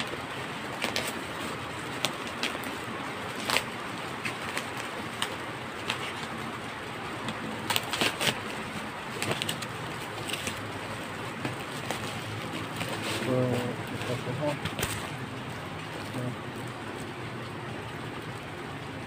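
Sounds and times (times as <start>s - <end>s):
knife cutting bubble wrap: 0.0s - 6.6s, 7.2s - 15.1s
bubble wrap crinkling and crackling: 0.0s - 18.3s
steady background noise: 0.0s - 19.0s.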